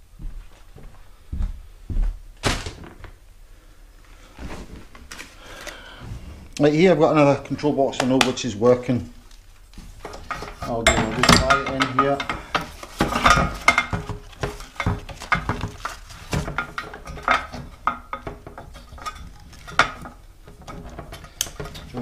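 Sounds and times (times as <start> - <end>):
clicks and rattles of plastic parts: 10.0 - 22.0.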